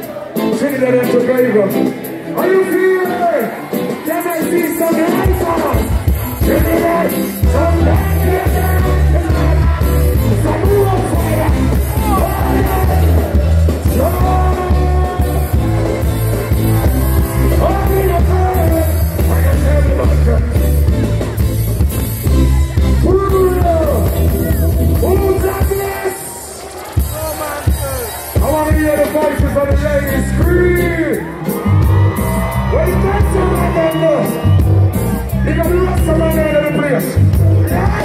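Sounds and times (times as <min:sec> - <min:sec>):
live reggae band playing: 0:00.0 - 0:38.0
man singing: 0:04.5 - 0:15.6, 0:17.3 - 0:20.6, 0:35.6 - 0:38.0
heavy bass line: 0:05.0 - 0:25.9, 0:29.4 - 0:38.0.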